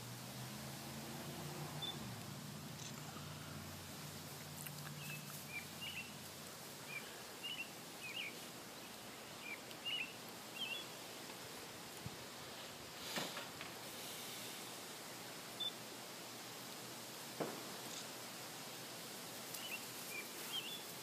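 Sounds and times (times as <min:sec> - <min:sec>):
bird chirping: 0:01.8 - 0:02.1, 0:04.6 - 0:06.2, 0:06.8 - 0:11.0, 0:19.6 - 0:20.9.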